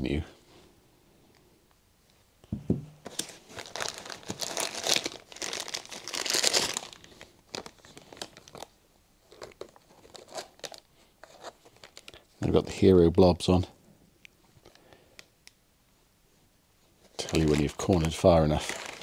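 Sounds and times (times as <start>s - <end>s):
knock: 2.5s - 3.0s
plastic bag crinkling: 3.1s - 12.3s, 17.1s - 19.0s.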